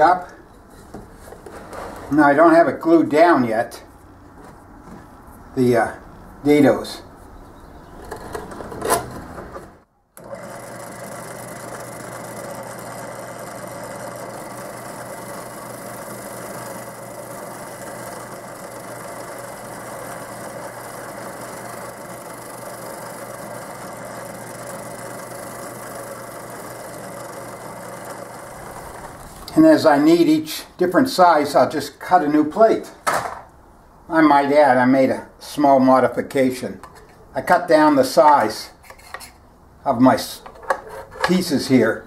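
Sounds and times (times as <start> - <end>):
shop vac running: 0.0 - 2.2, 8.5 - 30.0
drill press spinning: 8.0 - 29.6.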